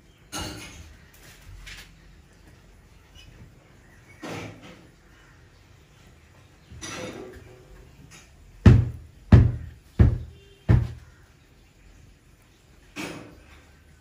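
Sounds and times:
loud booming thumps: 8.6s - 11.0s.

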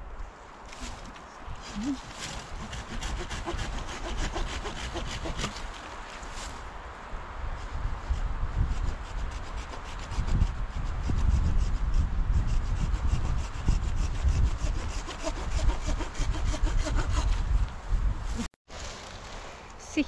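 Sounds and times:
hand saw cutting branch: 0.7s - 6.6s, 7.8s - 17.6s
wind buffeting microphone: 6.4s - 18.5s.

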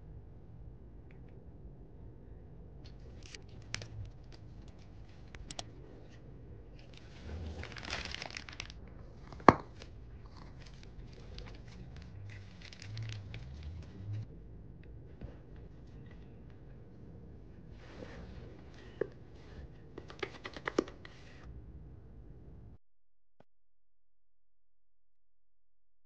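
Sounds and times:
plastic bag crinkling: 3.1s - 5.6s, 6.8s - 13.9s.

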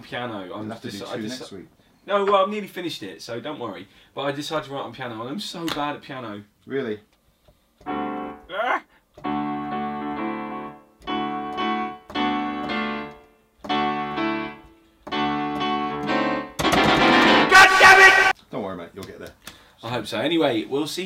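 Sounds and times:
digital piano chords: 7.8s - 8.5s, 9.2s - 18.3s.

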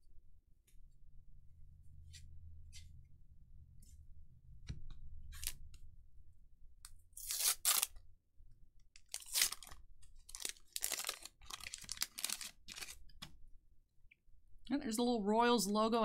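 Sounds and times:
paper wrapper crinkling and tearing: 7.2s - 8.0s, 9.0s - 13.2s.

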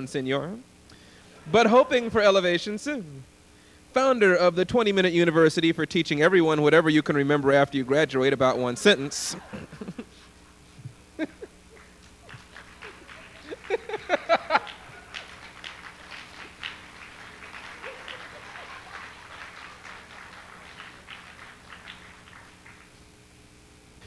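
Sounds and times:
audience applause: 11.7s - 23.0s.

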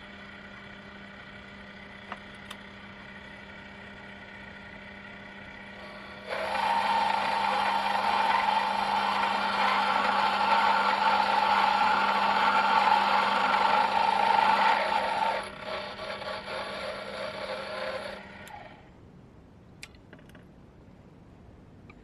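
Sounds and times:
motor hum: 0.0s - 19.0s
lathe cutting steel: 2.9s - 18.8s.

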